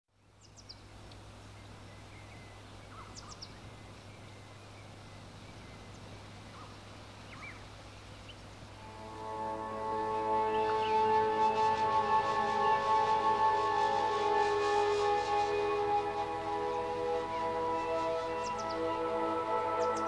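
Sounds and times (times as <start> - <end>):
steady hiss: 0.4 - 20.0
low hum: 8.7 - 20.0.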